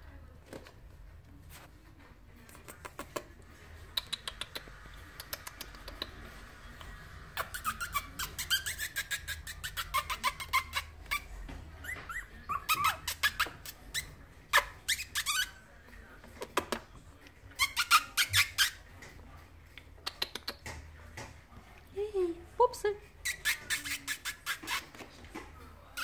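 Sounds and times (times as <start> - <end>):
puppies squeaking: 7.2 - 15.6, 17.5 - 18.9, 23.2 - 25.1.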